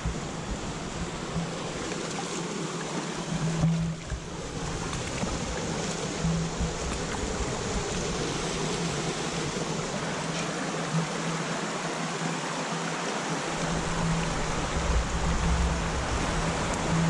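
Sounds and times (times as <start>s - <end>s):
creek water rushing over rocks: 0.0s - 17.0s
low rumble: 13.6s - 17.0s.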